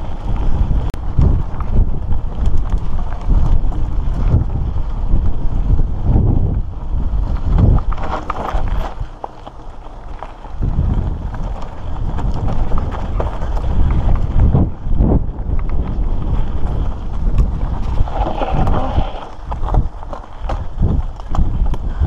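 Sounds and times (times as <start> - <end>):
bike rattling and knocking: 0.0 - 22.0
wind rumble on microphone: 0.0 - 22.0
tyres crunching on gravel: 7.0 - 21.8.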